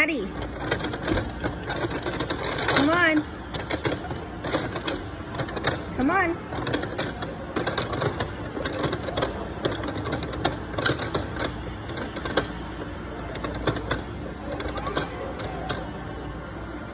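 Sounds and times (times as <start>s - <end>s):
background hubbub: 0.0s - 16.9s.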